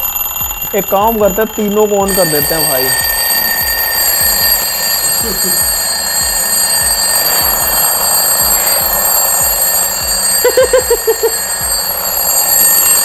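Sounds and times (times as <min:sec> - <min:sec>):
twin-bell alarm clocks ringing: 0:00.0 - 0:13.0.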